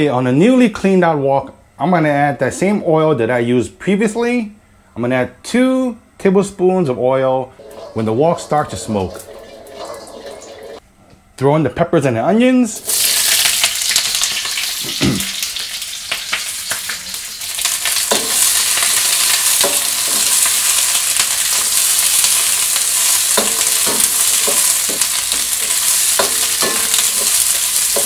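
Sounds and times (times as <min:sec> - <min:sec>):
vegetables sizzling in oil: 0:12.8 - 0:28.0.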